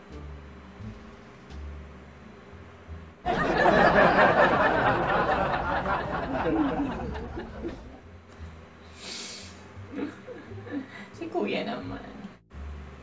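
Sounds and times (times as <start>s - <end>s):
loud burst of laughter: 3.3s - 8.0s.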